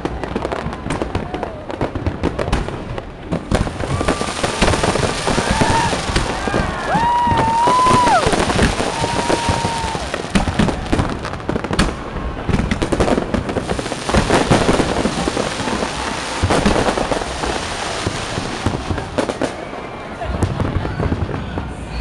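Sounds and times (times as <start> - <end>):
fireworks crackling and popping: 0.0 - 22.0
firework whistles: 3.5 - 11.0, 13.5 - 22.0.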